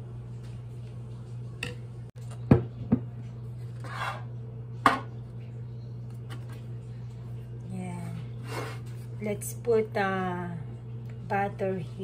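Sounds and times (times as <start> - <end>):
brief scrape on countertop: 3.7 - 4.3, 8.4 - 9.1
kitchenware clunking on wood: 4.8 - 5.1.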